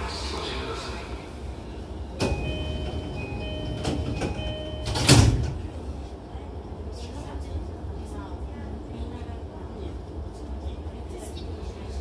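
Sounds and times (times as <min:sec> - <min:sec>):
train car low hum: 0:00.0 - 0:12.0
two-tone door chime: 0:02.2 - 0:05.4
sliding doors shutting with thud: 0:02.2 - 0:05.7.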